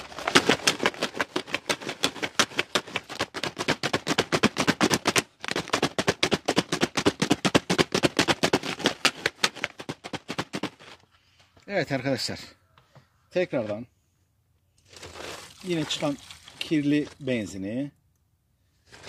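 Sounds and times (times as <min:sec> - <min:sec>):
chain rattling in plastic bottle: 0:00.0 - 0:11.0.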